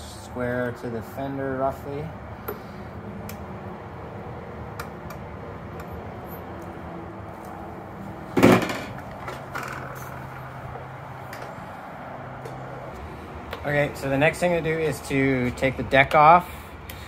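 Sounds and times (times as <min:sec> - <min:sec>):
loud clatter: 0:08.4 - 0:10.0.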